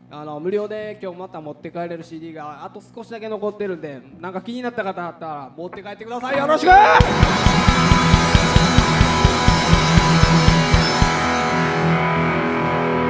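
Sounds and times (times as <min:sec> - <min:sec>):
kick drum beating: 0:06.8 - 0:11.3
electric guitar chord ringing: 0:06.8 - 0:13.0.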